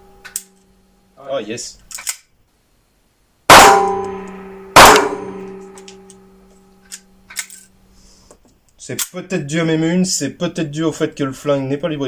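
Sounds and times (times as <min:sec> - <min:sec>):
pistol shots ringing: 0:03.5 - 0:05.8.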